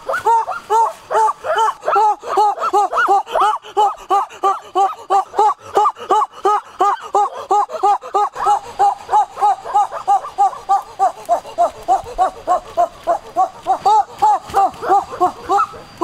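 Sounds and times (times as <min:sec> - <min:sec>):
animal yelping calls: 0:00.0 - 0:16.0.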